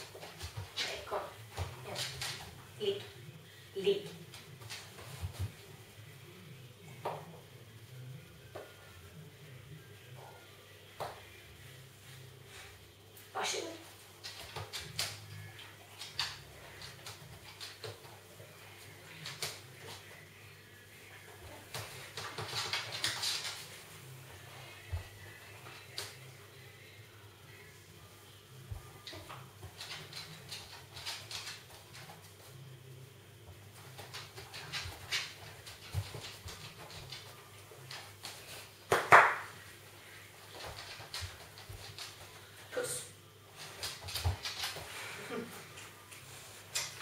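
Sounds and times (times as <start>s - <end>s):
paws tapping on floor: 0.0s - 3.2s, 33.5s - 39.5s, 43.5s - 45.0s
faint low hum: 0.0s - 47.0s
dog claws clicking on hard floor: 14.2s - 18.2s, 21.7s - 23.8s, 29.1s - 32.2s, 33.8s - 39.5s, 40.5s - 42.4s, 43.6s - 44.9s.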